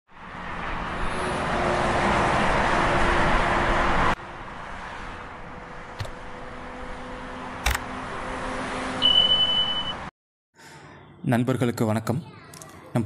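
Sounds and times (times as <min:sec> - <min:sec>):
traffic noise: 0:00.1 - 0:13.0
steady high beep: 0:09.0 - 0:10.1.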